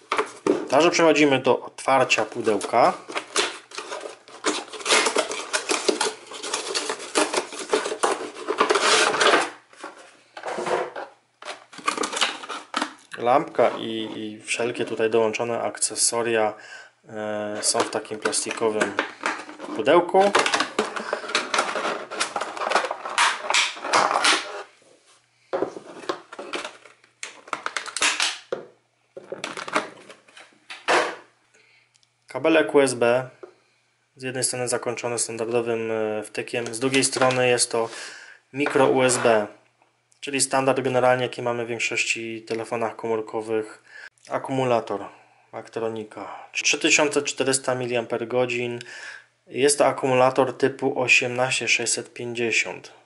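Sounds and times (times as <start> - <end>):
plastic and cardboard clatter: 0.0 - 0.8, 2.3 - 13.0, 17.6 - 24.7, 25.5 - 31.3, 36.6 - 37.5
cardboard flaps scraping and rustling: 2.4 - 12.8
plastic bags crinkling: 2.4 - 13.0, 17.6 - 24.7, 25.7 - 28.5.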